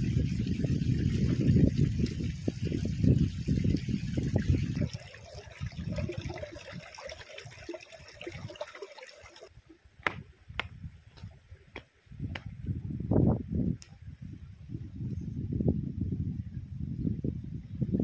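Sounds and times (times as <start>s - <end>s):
water trickling over rock: 0.0s - 9.5s.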